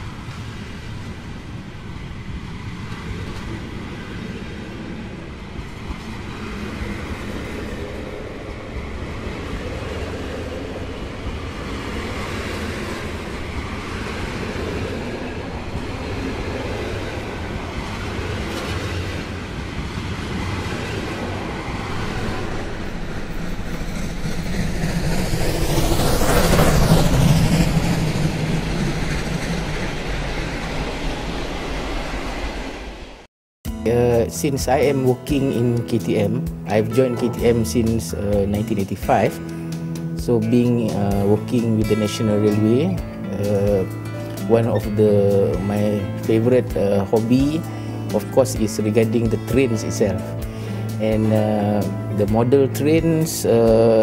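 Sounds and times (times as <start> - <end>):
model train wheels rolling on rail: 0.0 - 32.3.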